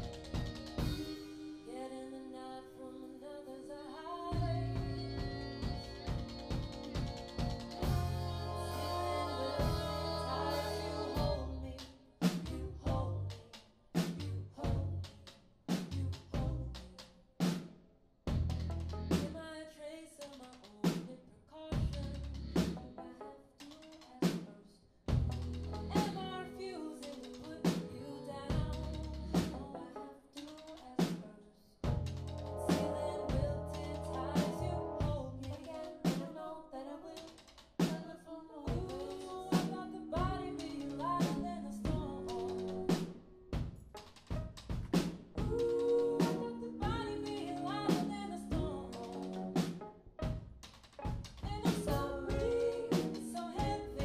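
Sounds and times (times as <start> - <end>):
indie rock band playing: 0.0 - 1.6, 4.4 - 11.6, 25.2 - 29.8, 38.7 - 54.0.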